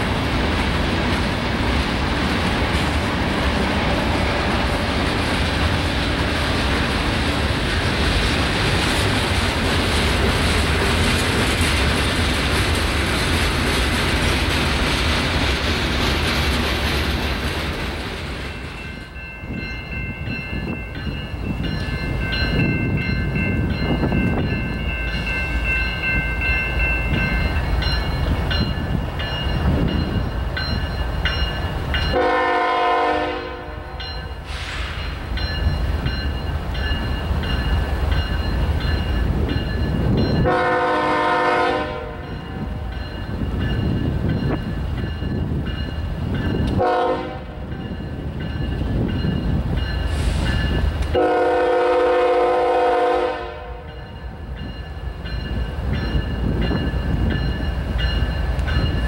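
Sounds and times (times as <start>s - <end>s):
low rumble of locomotives: 0.0s - 59.0s
locomotive air horn blasts: 32.1s - 34.7s, 40.4s - 42.2s, 46.8s - 47.6s, 51.2s - 53.9s.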